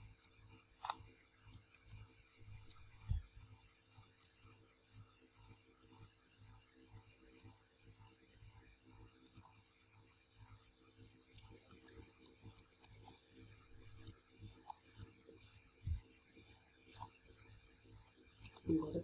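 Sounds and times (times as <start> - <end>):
low steady hum: 0.0 - 19.0
computer mouse clicks: 0.1 - 3.3, 4.2 - 4.4, 7.3 - 7.6, 9.2 - 9.6, 11.3 - 13.2, 13.8 - 15.2, 16.8 - 17.2, 18.4 - 18.8.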